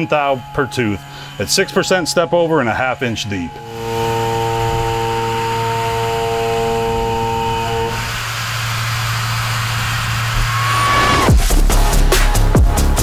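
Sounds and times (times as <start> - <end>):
milling machine whine: 0.0 - 11.7
low hum: 3.5 - 12.0.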